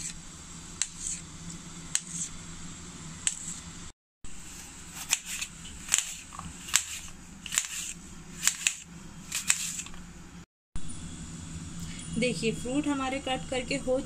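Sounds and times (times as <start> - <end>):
knife slicing apple on plate: 0.8 - 1.3, 1.9 - 2.4.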